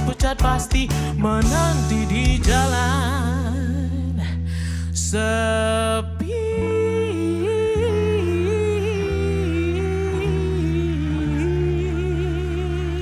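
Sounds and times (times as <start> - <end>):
backing track of low chords: 0.0 - 13.0
man singing a long note: 5.1 - 13.0.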